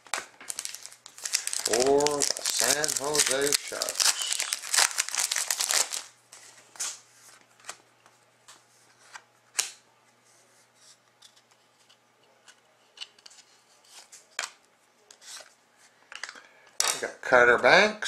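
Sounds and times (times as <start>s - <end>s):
card pack wrapper crinkling: 0.0s - 6.2s.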